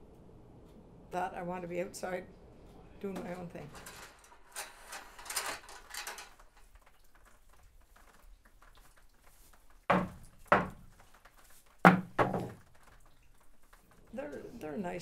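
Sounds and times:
sharp knocks on wood: 9.9s - 11.0s, 11.8s - 12.6s.

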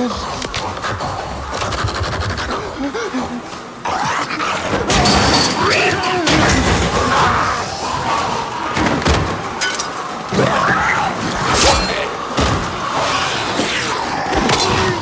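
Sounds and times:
thuds of blows and bodies: 12.3s - 13.0s.

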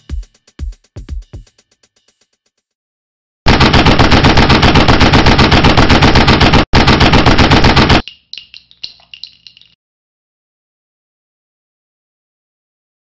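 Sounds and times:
machine-gun fire: 3.5s - 8.0s
metallic ringing clicks: 8.0s - 9.8s.

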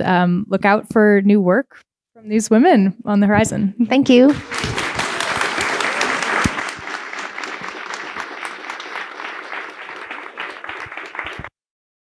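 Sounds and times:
audience applauding: 4.3s - 11.5s.

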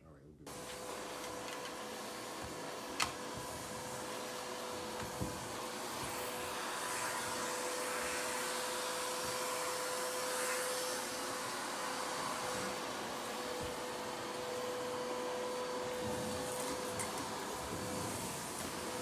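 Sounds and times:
vacuum cleaner running: 0.5s - 19.0s.

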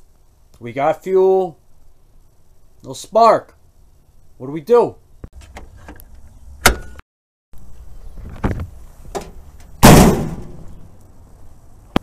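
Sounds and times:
clunks: 5.4s - 7.0s
car hood slamming: 6.6s - 7.0s, 9.1s - 10.7s.

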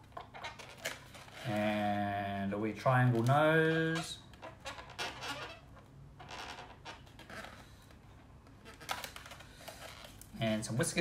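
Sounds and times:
balloon squeaking: 0.0s - 2.0s, 3.2s - 10.2s
marker squeaking on balloon: 3.6s - 7.8s.

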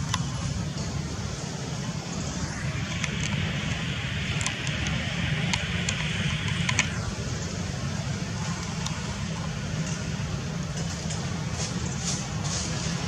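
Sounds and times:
low outdoor rumble: 0.0s - 13.0s
faint high ticks: 2.8s - 6.9s.

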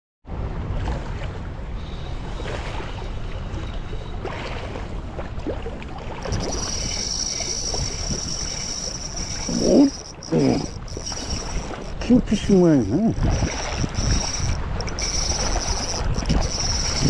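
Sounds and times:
water lapping at shoreline: 0.3s - 17.0s
wind on microphone: 0.3s - 17.0s
high-pitched whine: 6.2s - 12.0s, 13.1s - 17.0s.

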